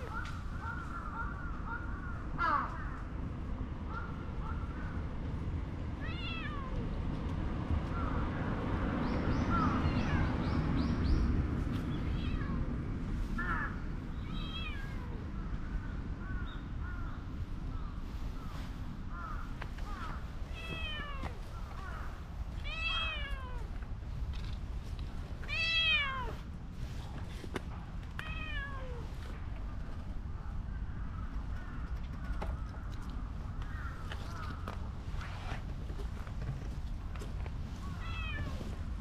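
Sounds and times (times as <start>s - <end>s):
cat meowing: 12.0s - 12.6s, 13.6s - 15.2s, 20.5s - 21.4s, 22.6s - 23.7s, 25.5s - 26.4s, 28.2s - 29.1s, 38.0s - 38.6s.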